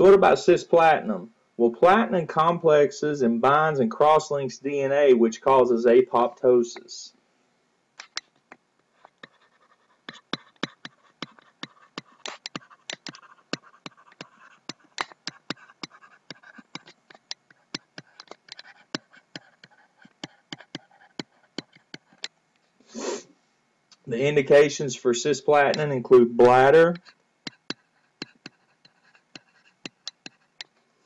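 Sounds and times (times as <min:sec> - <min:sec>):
stylus tapping on a tablet: 0:10.3 - 0:22.3.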